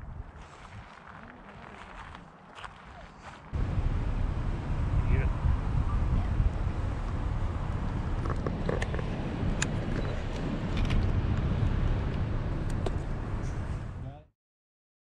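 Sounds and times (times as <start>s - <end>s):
car tyres rumbling on road: 3.6s - 14.1s.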